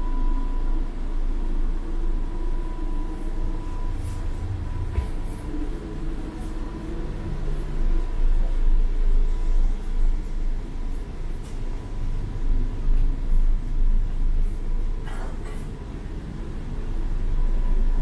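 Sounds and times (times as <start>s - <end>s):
faint steady high tone: 0.0s - 10.1s
low rumble inside train car: 0.0s - 18.0s.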